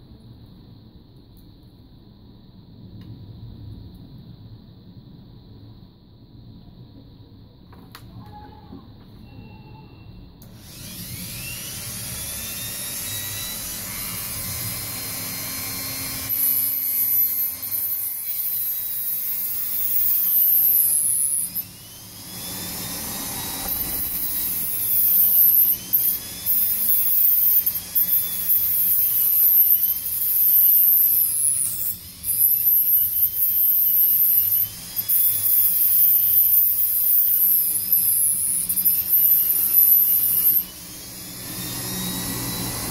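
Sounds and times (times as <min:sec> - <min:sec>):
high grinding hiss: 0:10.4 - 0:42.9
rotary tool whining: 0:10.4 - 0:42.9.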